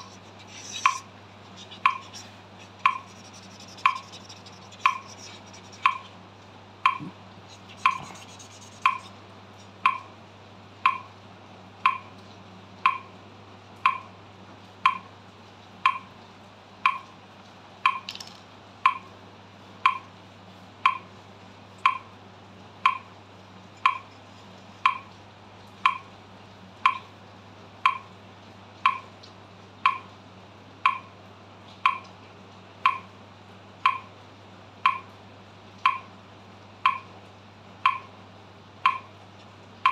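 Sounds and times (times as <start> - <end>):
metronome ticking: 0.0 - 6.1, 6.8 - 9.1, 9.8 - 10.1, 10.8 - 11.1, 11.8 - 12.1, 12.8 - 13.1, 13.8 - 14.1, 14.8 - 15.1, 15.8 - 16.1, 16.8 - 17.1, 17.8 - 18.1, 18.8 - 19.1, 19.8 - 20.1, 20.8 - 21.1, 21.8 - 22.1, 22.8 - 23.1, 23.8 - 24.2, 24.8 - 25.1, 25.8 - 26.1, 26.8 - 27.1, 27.8 - 28.1, 28.8 - 29.1, 29.8 - 30.1, 30.8 - 31.1, 31.8 - 32.1, 32.8 - 33.1, 33.8 - 34.1, 34.8 - 35.1, 35.8 - 36.1, 36.8 - 37.1, 37.8 - 38.1, 38.8 - 39.1
marker scratching on paper: 0.0 - 6.2, 6.9 - 9.8
low steady hum: 0.0 - 39.9.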